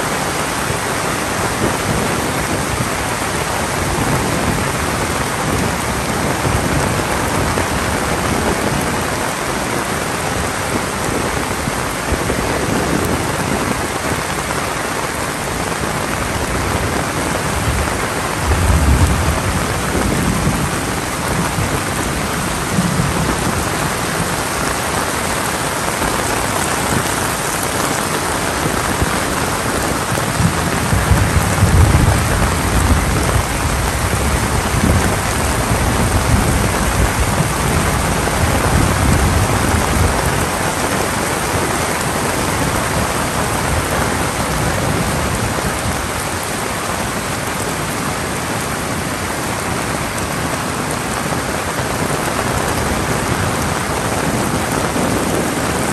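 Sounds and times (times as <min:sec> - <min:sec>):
heavy rain falling: 0:00.0 - 0:55.9
thunder rumbling: 0:16.2 - 0:47.3.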